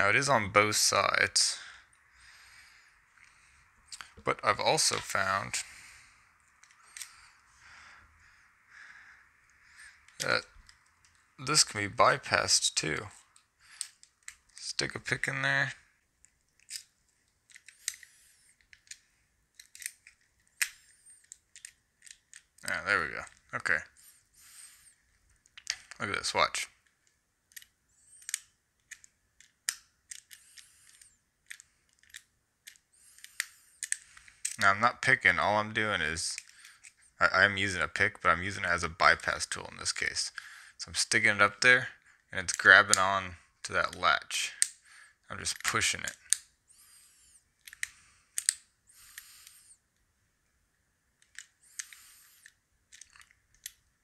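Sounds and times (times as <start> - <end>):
metal pick clicking in padlock: 19.6 - 22.4, 47.6 - 48.6.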